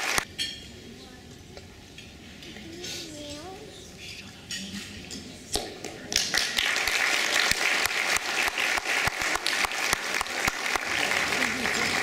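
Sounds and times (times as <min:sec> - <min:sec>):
audience applauding: 0:00.0 - 0:00.2, 0:06.2 - 0:12.0.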